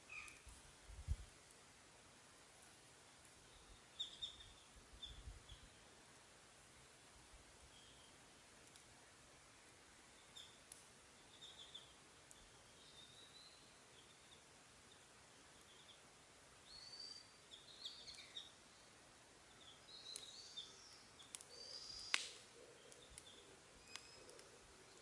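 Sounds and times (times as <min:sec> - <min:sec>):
wood fire crackling: 0:08.3 - 0:11.3, 0:11.9 - 0:12.8, 0:17.3 - 0:25.0
birds chirping: 0:10.0 - 0:25.0.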